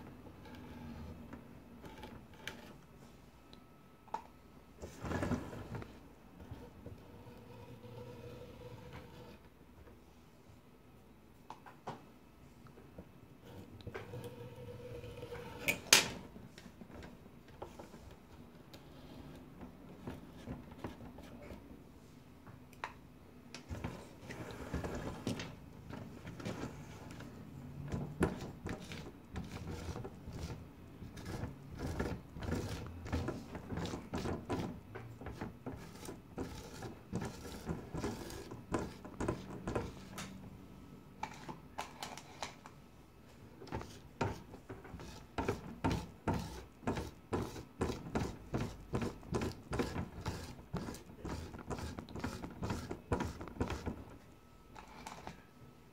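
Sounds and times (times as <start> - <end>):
grout float scraping glass: 6.4 - 9.4, 13.4 - 15.9, 27.9 - 40.2, 43.7 - 54.1
tool scraping grout: 27.9 - 40.1, 43.7 - 54.0.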